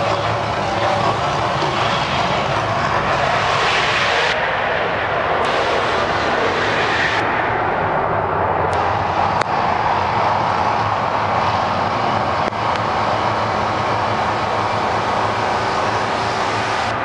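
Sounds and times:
roaring gas flame bursts: 5.4 - 17.0.

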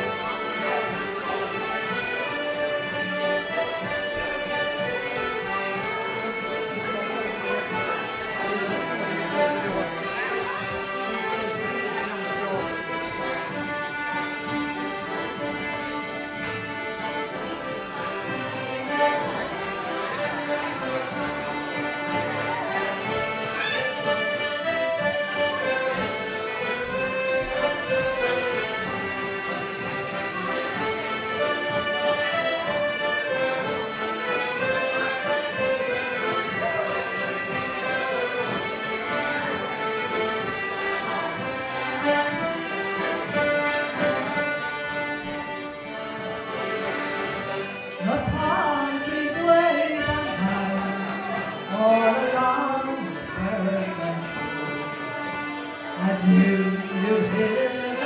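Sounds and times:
accordions and fiddles dance tune: 0.0 - 58.0.

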